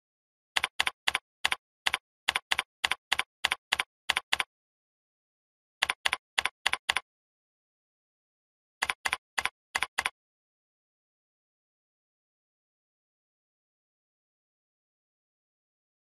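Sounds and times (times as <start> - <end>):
keyboard typing clicks: 0.6 - 4.5, 5.8 - 7.0, 8.8 - 10.2.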